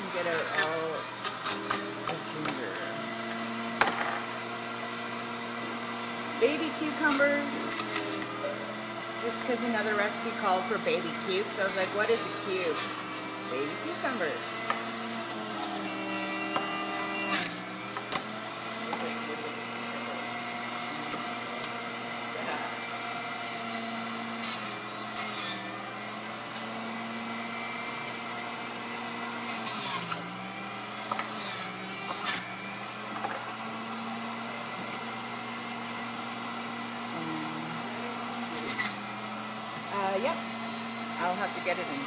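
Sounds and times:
electric juicer motor humming: 0:00.0 - 0:42.0.

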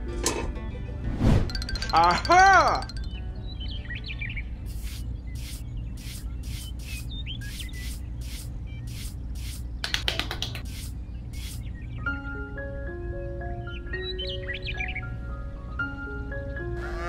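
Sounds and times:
xylophone-like music: 0:01.4 - 0:03.5.

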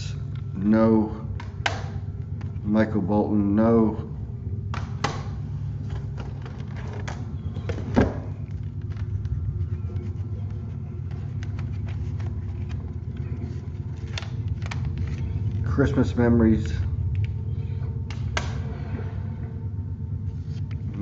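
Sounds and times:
steady low hum: 0:00.0 - 0:21.0
plastic cd cases clicking: 0:05.9 - 0:15.6.

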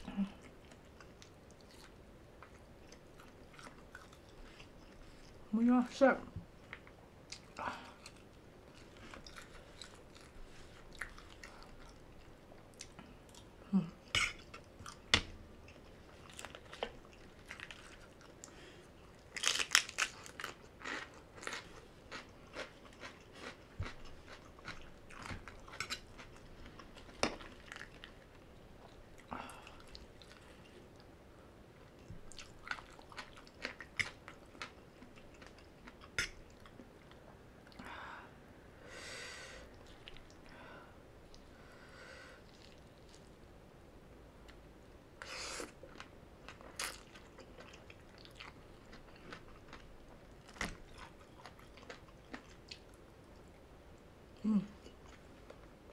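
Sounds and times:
chewing and crunching crisp food: 0:00.0 - 0:05.5, 0:06.6 - 0:31.1, 0:31.8 - 0:37.9, 0:42.4 - 0:43.5, 0:45.6 - 0:55.9.

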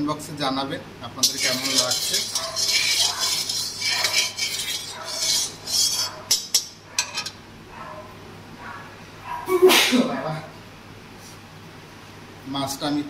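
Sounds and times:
metal spatula scraping a pan: 0:01.2 - 0:07.4.

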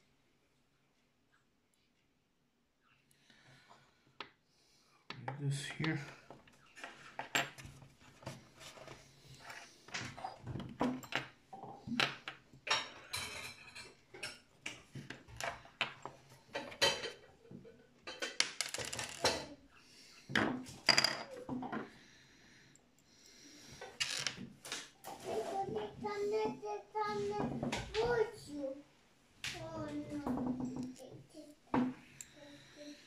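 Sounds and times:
plastic parts clicking and clattering: 0:18.0 - 0:19.6.

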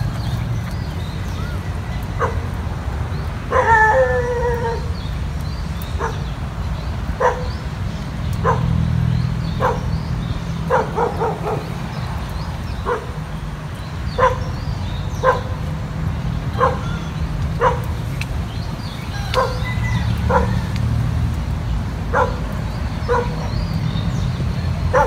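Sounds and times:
dog barking: 0:02.2 - 0:02.4, 0:06.0 - 0:06.3, 0:07.2 - 0:07.6, 0:08.4 - 0:08.7, 0:09.6 - 0:09.9, 0:10.7 - 0:11.7, 0:12.8 - 0:13.2, 0:14.2 - 0:14.5, 0:15.2 - 0:15.6, 0:16.6 - 0:17.0, 0:17.6 - 0:17.9, 0:19.4 - 0:19.7, 0:20.3 - 0:20.6, 0:22.1 - 0:23.6.

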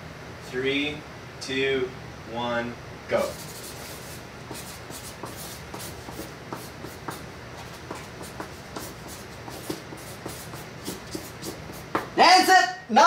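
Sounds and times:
marker scratching on paper: 0:03.2 - 0:12.1.

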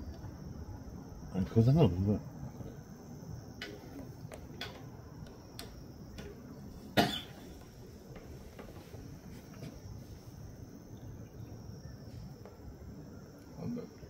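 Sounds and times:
crickets chirring: 0:00.0 - 0:14.0
person coughing: 0:07.0 - 0:07.4.

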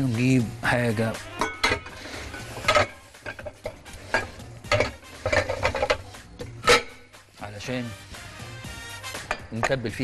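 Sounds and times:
dishes and utensils clattering: 0:01.3 - 0:07.1, 0:09.2 - 0:10.0.

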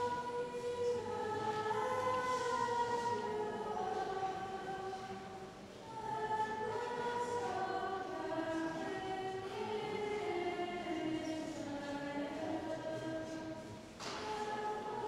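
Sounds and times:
choir singing: 0:00.0 - 0:15.0.

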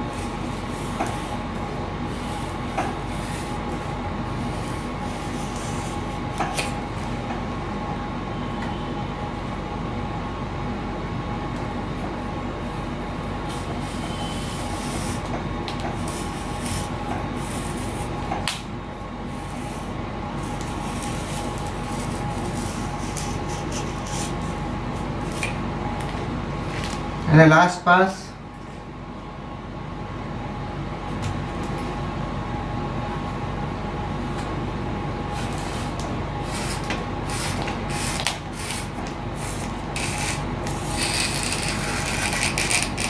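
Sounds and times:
steady mechanical hum: 0:00.0 - 0:43.0
hobby knife scratching and clicking: 0:36.6 - 0:38.9, 0:39.5 - 0:43.0.

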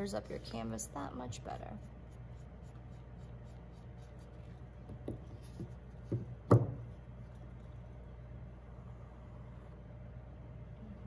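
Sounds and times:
faint steady hum: 0:00.0 - 0:11.0
canvas frame knocking on table: 0:05.0 - 0:06.8.

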